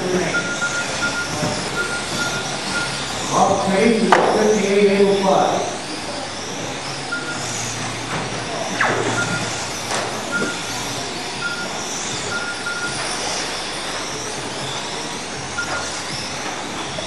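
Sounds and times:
electric rc car motors whining: 0.0s - 17.0s
short beeps: 0.2s - 3.2s, 7.1s - 7.5s, 8.8s - 13.1s, 15.6s - 16.0s.

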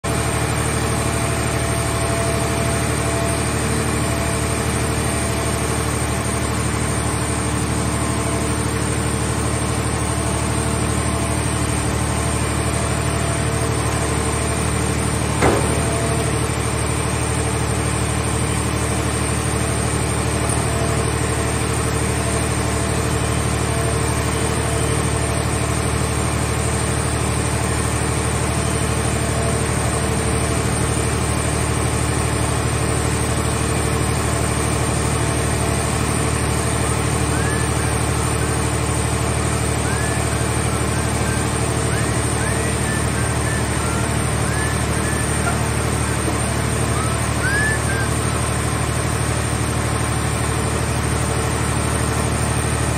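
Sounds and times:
hydraulic machinery droning: 0.1s - 52.9s
sharp metal knock: 15.4s - 16.1s.

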